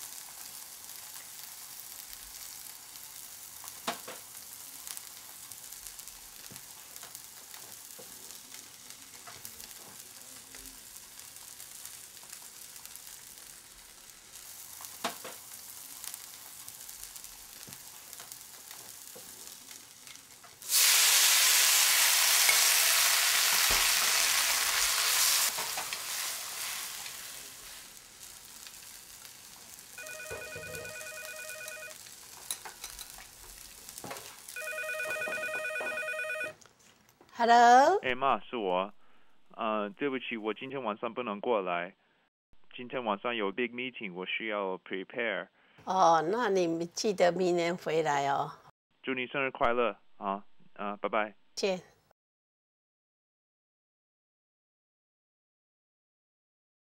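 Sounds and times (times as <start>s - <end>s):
faint kitchen hiss: 0.0s - 30.5s, 32.0s - 34.6s
food sizzling in a pan: 0.0s - 35.1s
telephone ringing electronically: 30.0s - 32.0s, 34.6s - 36.6s.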